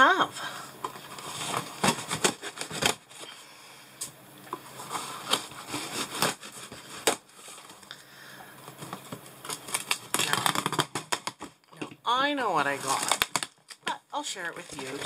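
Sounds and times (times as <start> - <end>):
scraping and rustling cardboard: 0.8 - 3.3, 4.6 - 7.8, 14.5 - 15.0.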